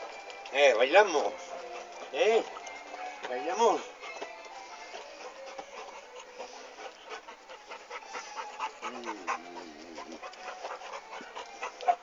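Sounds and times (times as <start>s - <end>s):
dog panting: 0.0s - 12.0s
dog wavering vocal sound: 4.8s - 12.0s.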